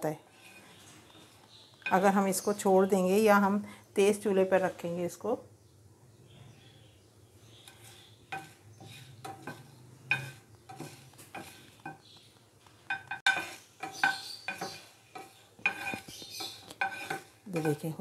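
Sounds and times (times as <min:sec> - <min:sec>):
wooden spoon scraping a pan: 0:00.0 - 0:02.7, 0:07.4 - 0:18.0
dried chillies rattling: 0:13.3 - 0:18.0.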